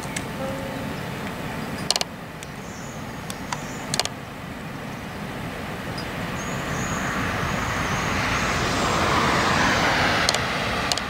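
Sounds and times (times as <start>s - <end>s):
freight train rumbling on rails: 0.0s - 11.0s
high wavering whine: 0.0s - 11.0s
sharp clicks: 1.2s - 2.6s, 3.3s - 4.2s, 10.2s - 11.0s.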